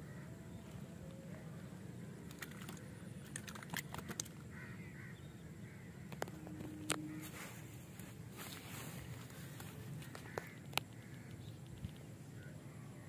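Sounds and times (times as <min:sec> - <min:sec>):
clicks and taps handling fish: 0:02.3 - 0:04.4, 0:09.1 - 0:12.1.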